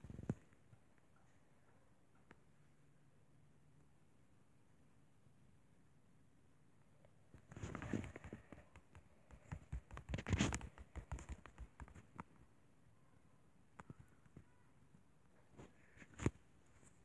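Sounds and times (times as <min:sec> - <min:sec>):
fingertips tapping on touchscreen: 0:07.4 - 0:12.4.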